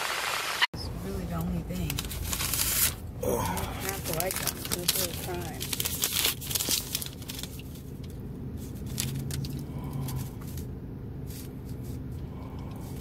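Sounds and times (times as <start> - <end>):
low car cabin hum: 0.8 - 13.0
paper receipt crinkling: 1.7 - 12.0.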